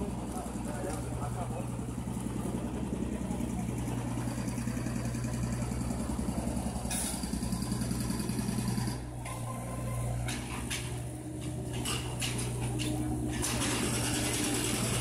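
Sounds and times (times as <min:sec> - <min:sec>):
vehicle engine idling: 0:00.0 - 0:15.0
hiss: 0:06.8 - 0:07.8.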